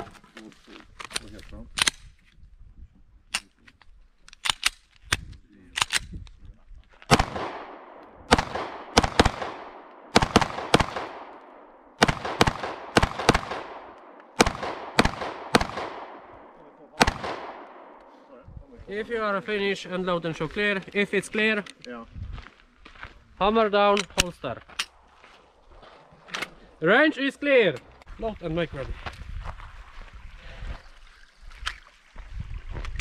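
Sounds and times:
pistol shots with echo: 7.1 - 18.0.

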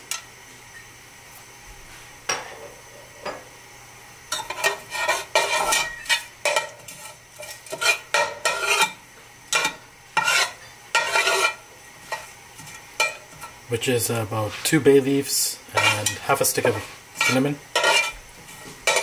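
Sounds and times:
light sizzle: 0.0 - 19.0
metal spoon scraping cooking pot: 4.3 - 9.0, 9.6 - 13.2, 15.8 - 18.2.

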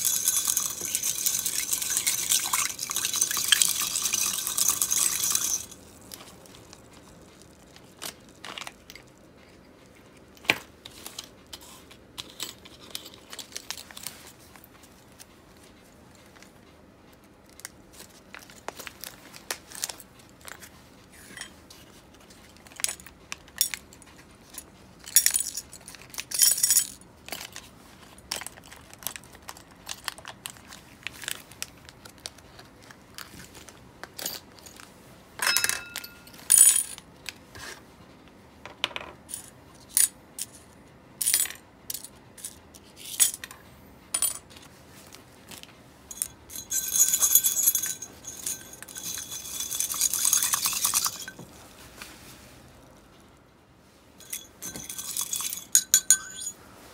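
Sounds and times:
small metal parts clinking: 0.0 - 6.3, 25.0 - 27.6, 35.4 - 37.0, 46.1 - 51.4, 54.2 - 56.6.

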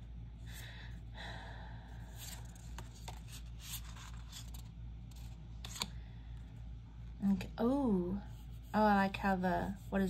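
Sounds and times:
low hum: 0.0 - 10.0
cards rustling: 2.1 - 6.0.

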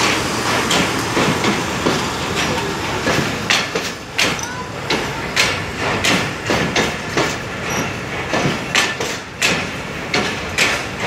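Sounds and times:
train rolling rumble: 0.0 - 11.0
train wheels clacking on rail joints: 0.0 - 11.0.

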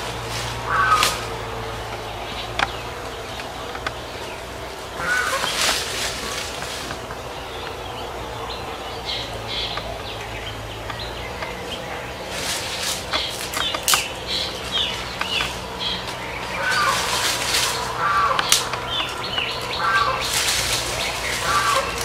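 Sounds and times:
birds chirping: 0.0 - 22.0
dry leaves rustling: 0.0 - 22.0.

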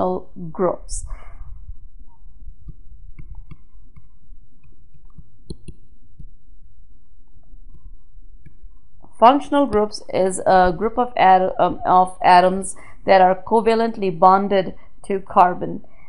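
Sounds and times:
steady low hum: 0.0 - 16.0
stylus tapping and scratching on tablet: 0.9 - 13.3.

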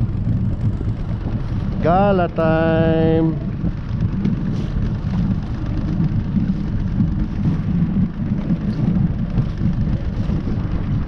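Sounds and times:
boat motor running: 0.0 - 11.0.

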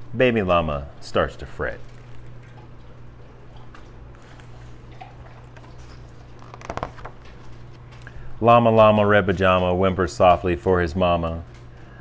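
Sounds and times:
low electrical hum: 0.0 - 12.0
book rustling and tapping: 5.4 - 7.9.

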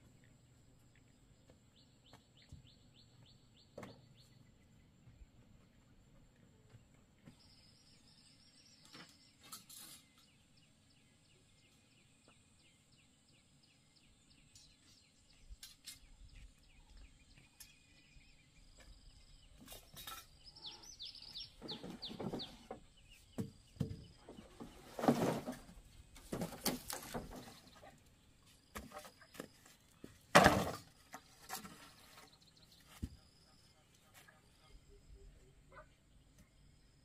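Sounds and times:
bamboo poles knocking together: 26.2 - 27.7
faint bird chirps: 31.8 - 37.0.

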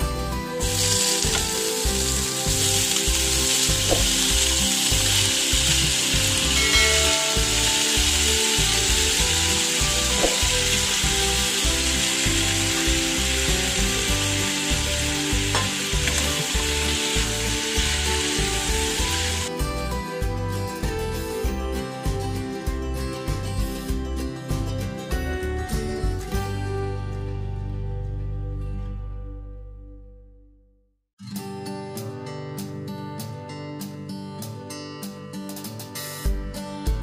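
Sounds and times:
background music with regular beat: 0.0 - 27.3, 31.9 - 37.0
chicken sizzling in pan: 0.6 - 19.5.

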